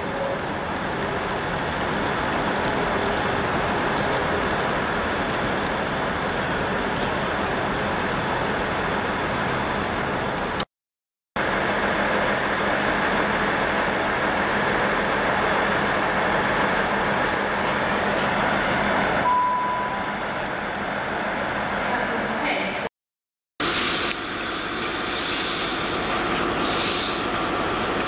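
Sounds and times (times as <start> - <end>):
railway station rumble and hiss: 0.0 - 10.7, 11.4 - 22.9, 23.6 - 28.0
short steady beep: 19.2 - 20.1.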